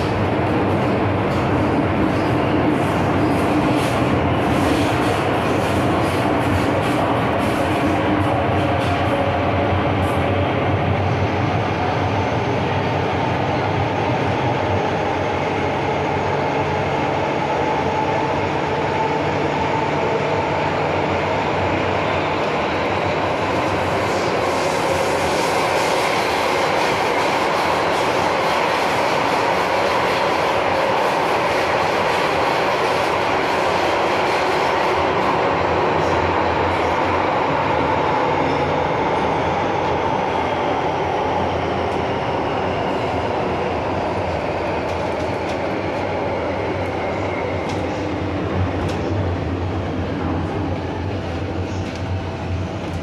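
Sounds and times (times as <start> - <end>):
hissy rail noise with ticks: 0.0 - 10.4, 23.0 - 37.2, 44.7 - 53.0
train wheels running on rails: 0.0 - 53.0.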